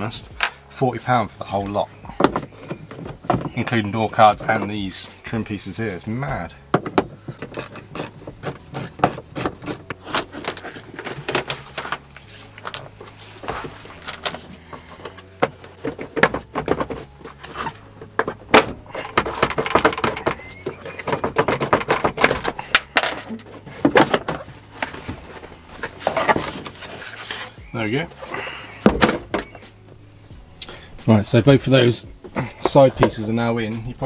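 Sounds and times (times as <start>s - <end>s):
seatbelt hardware clattering: 13.9s - 25.2s.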